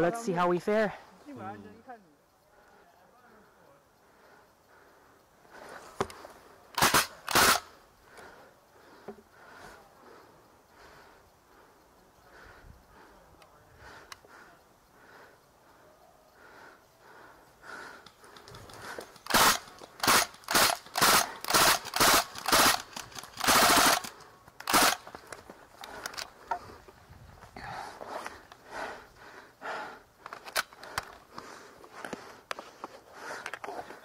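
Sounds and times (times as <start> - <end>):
airsoft gun firing: 6.8 - 7.7, 19.3 - 25.0.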